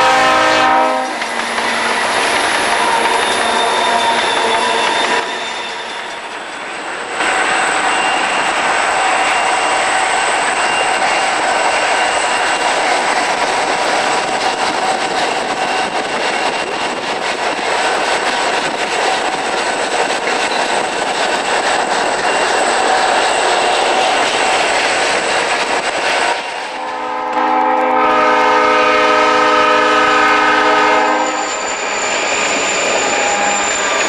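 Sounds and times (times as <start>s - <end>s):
locomotive horn blast: 0.0s - 1.2s, 26.8s - 31.6s
diesel locomotive rumble: 0.0s - 34.0s.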